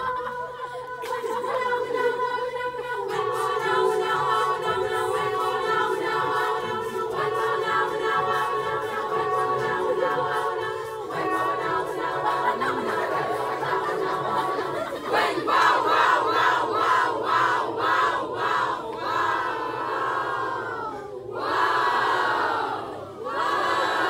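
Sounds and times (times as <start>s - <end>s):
choir singing a cappella: 0.0s - 24.0s.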